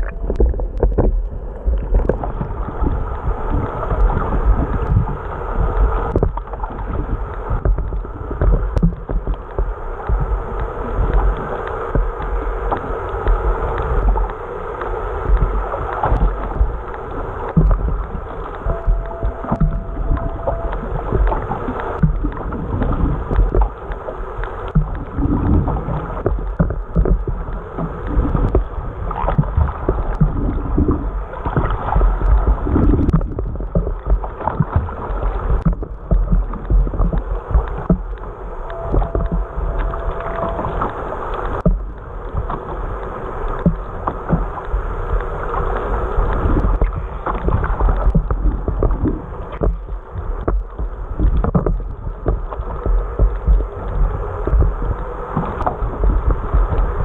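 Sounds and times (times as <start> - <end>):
low rumble: 0.0 - 57.0
muffled underwater water rush: 0.0 - 57.0.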